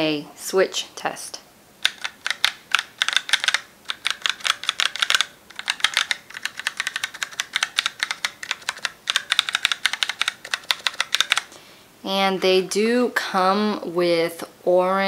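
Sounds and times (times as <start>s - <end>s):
mechanical keyboard typing: 1.8s - 11.5s.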